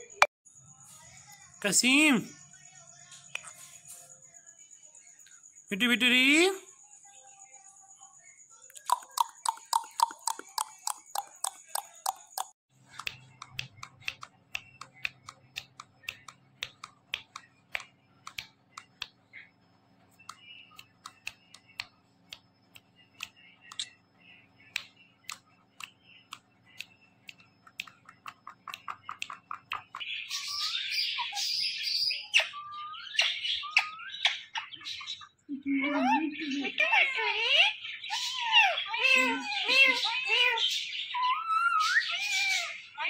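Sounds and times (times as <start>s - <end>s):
beak and claws tapping on concrete: 8.8s - 19.2s, 20.2s - 24.0s, 24.7s - 30.2s
parrot squawks and chirps: 36.0s - 43.0s.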